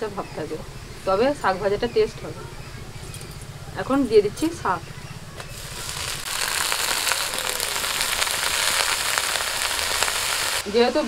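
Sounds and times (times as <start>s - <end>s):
greens sizzling in hot oil: 5.5s - 11.0s.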